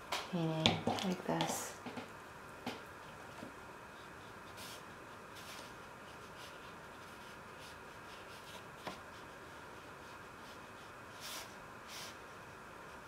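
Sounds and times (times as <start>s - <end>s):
paintbrush swishing on paper: 3.9s - 13.0s.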